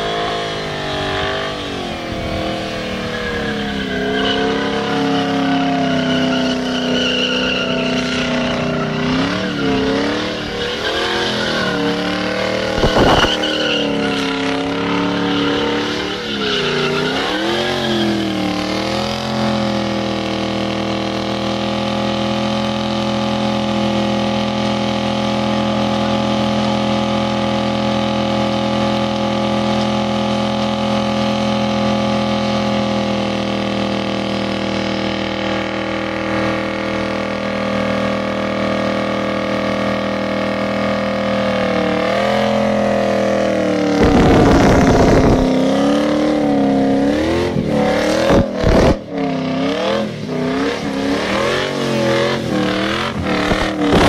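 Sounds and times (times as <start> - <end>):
car engine screaming at high revs: 0.0 - 54.0.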